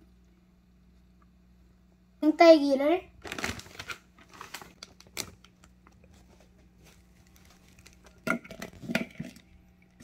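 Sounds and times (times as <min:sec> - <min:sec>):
plastic zip bag rustling: 0:03.2 - 0:09.0.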